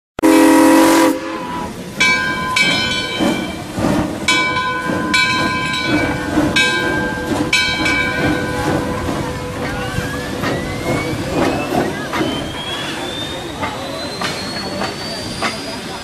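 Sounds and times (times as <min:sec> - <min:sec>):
locomotive horn blast: 0:00.2 - 0:01.8
train running: 0:00.2 - 0:16.0.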